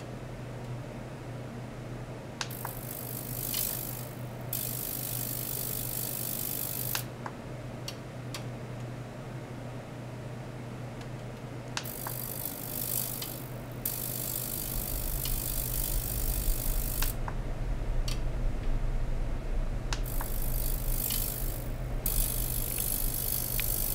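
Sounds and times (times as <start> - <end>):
steady low hum: 0.0 - 23.9
high ultrasonic hiss: 2.5 - 7.1, 11.8 - 18.3, 19.8 - 23.9.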